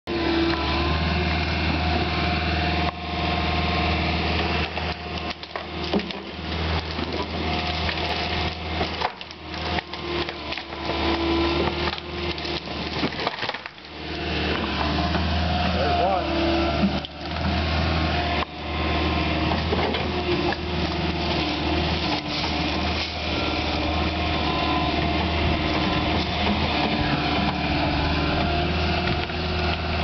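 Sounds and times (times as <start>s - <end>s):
excavator diesel engine running: 0.1s - 30.0s
tree trunk cracking and splintering: 4.4s - 15.4s, 16.7s - 18.5s, 19.6s - 30.0s.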